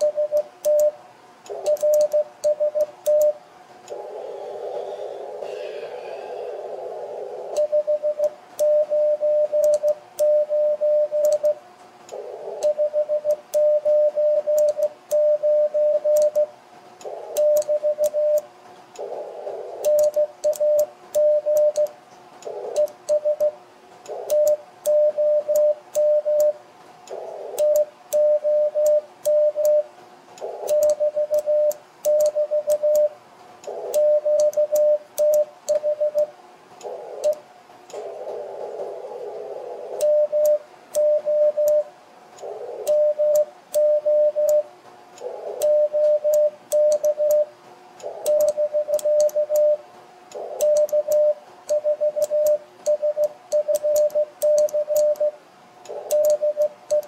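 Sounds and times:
morse code tone: 0.0s - 1.0s, 1.6s - 3.4s, 7.6s - 11.6s, 12.6s - 16.5s, 17.4s - 18.4s, 19.8s - 21.9s, 22.8s - 23.6s, 24.3s - 26.6s, 27.6s - 29.9s, 30.7s - 33.1s, 34.0s - 36.3s, 40.0s - 41.9s, 42.9s - 44.7s, 45.6s - 47.5s, 48.2s - 49.8s, 50.6s - 55.4s, 56.1s - 57.0s
morse key clicks: 30.4s - 35.9s, 48.0s - 49.7s, 50.3s - 57.0s
receiver hiss: 39.4s - 57.0s.

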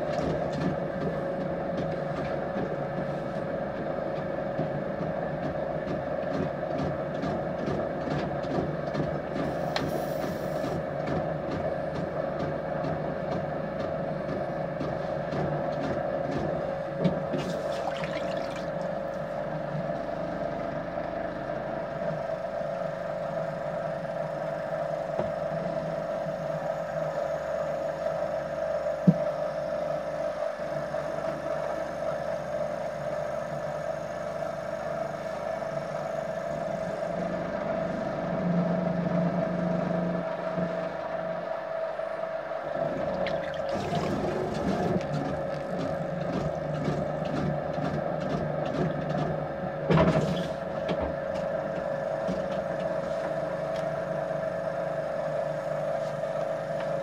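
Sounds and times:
potter's wheel motor humming: 38.3s - 49.8s.

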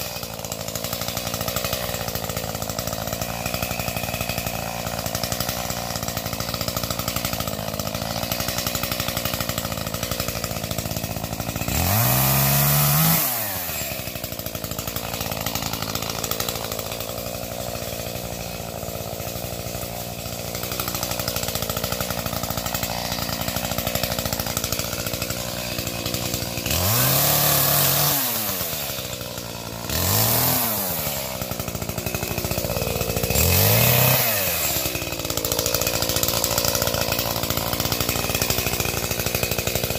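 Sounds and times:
chainsaw revving: 0.0s - 39.9s.

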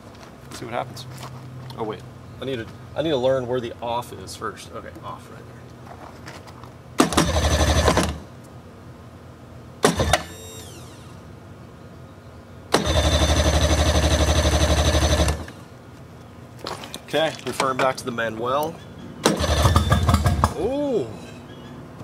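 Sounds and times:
outboard engine starter cranking: 7.0s - 8.2s, 12.7s - 15.6s, 19.2s - 20.4s.

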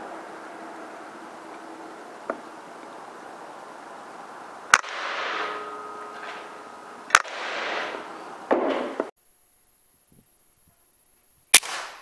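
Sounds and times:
air rifle shots: 4.7s - 5.5s, 7.1s - 8.0s, 11.5s - 12.0s.

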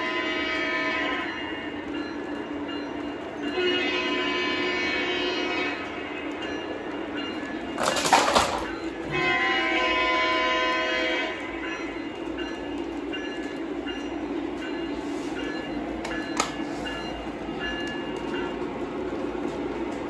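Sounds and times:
train horn chord: 0.0s - 1.3s, 3.5s - 6.1s, 9.0s - 11.6s.

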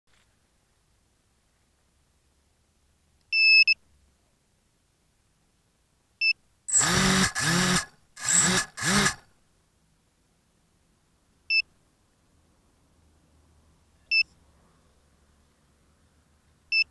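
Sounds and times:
quadcopter motors spinning up: 6.7s - 9.2s.

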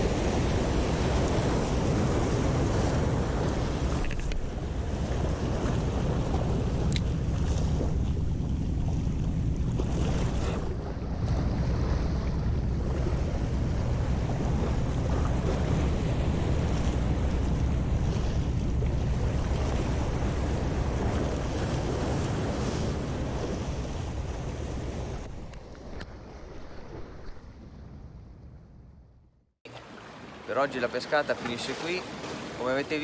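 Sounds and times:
wind buffeting the microphone: 0.0s - 28.4s
waves breaking against rocks: 29.7s - 33.0s.

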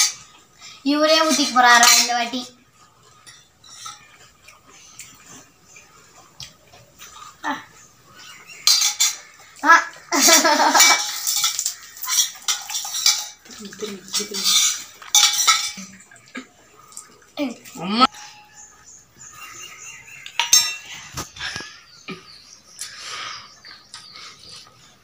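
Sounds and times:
spoon clinking against steel bowl: 8.6s - 9.4s, 10.8s - 16.0s, 20.2s - 21.0s.

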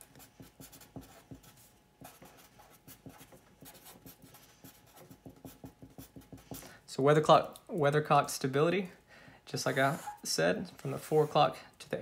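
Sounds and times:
marker scratching on paper: 0.0s - 6.6s.

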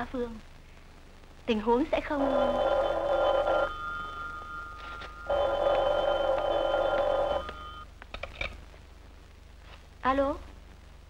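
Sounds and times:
desk telephone ringing: 2.2s - 7.8s.

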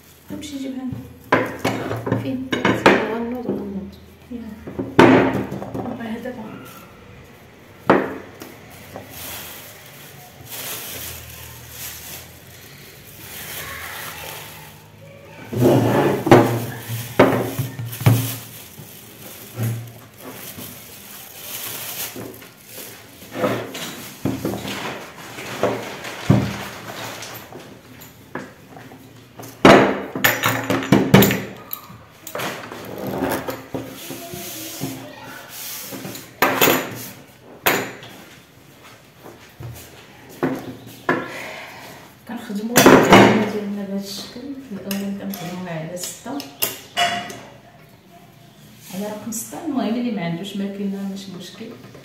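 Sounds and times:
kitchen things clattering on wooden table: 1.0s - 3.7s, 4.6s - 6.0s, 7.8s - 9.6s, 15.5s - 21.0s, 21.9s - 35.1s, 35.8s - 38.5s, 42.8s - 43.6s, 44.8s - 47.6s
soft rustle: 8.6s - 15.2s, 16.4s - 27.9s.

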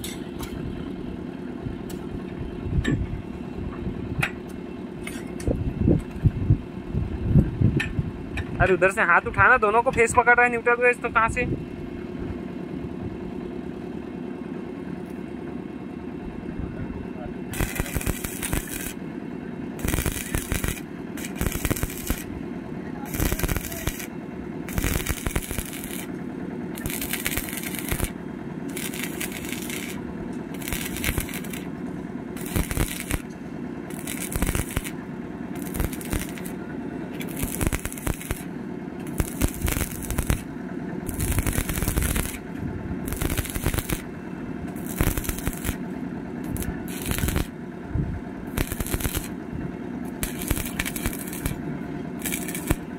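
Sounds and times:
steady low hum: 0.0s - 52.9s
welding arc crackling and sizzling: 17.5s - 19.0s, 19.8s - 22.4s, 23.0s - 36.6s, 37.2s - 47.6s, 48.5s - 49.4s, 50.0s - 51.6s, 52.2s - 52.9s.

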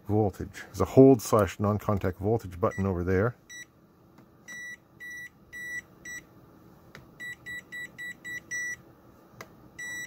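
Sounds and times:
voltage detector beeping: 7.2s - 8.8s, 9.8s - 10.0s.

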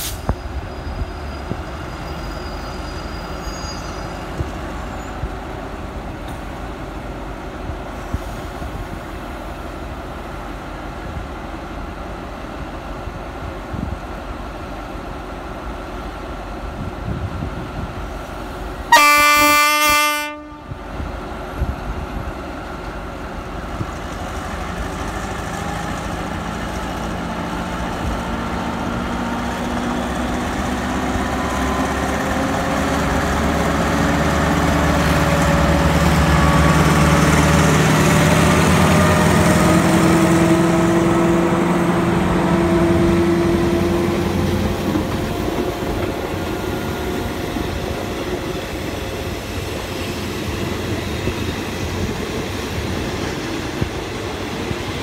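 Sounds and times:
train coaches rolling on rails: 0.0s - 55.0s
locomotive horn blast: 18.9s - 20.8s
locomotive engine drone: 20.3s - 55.0s.

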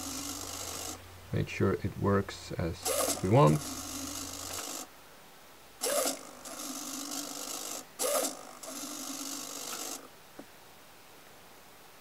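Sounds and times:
micro servo whirring: 0.0s - 1.0s, 2.8s - 4.9s, 5.8s - 10.1s.

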